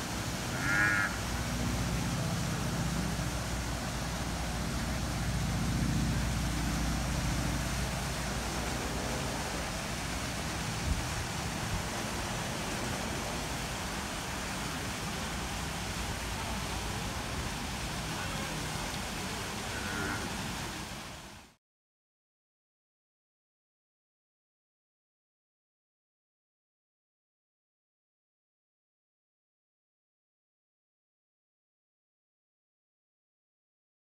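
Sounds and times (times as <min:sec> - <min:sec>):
even hiss: 0:00.0 - 0:21.6.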